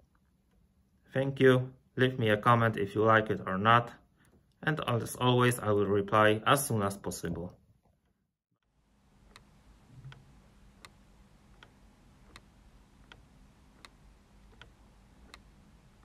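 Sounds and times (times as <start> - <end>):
clock ticking: 9.3 - 16.0.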